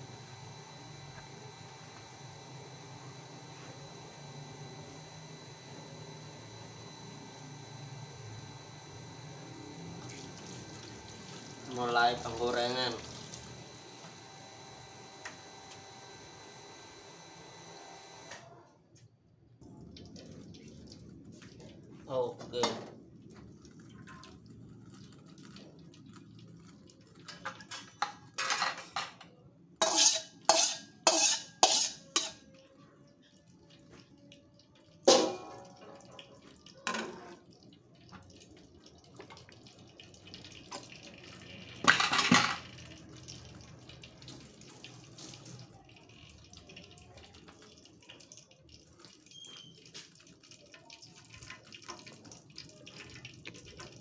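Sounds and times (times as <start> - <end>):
cookware clattering: 27.3 - 32.4, 41.8 - 42.7.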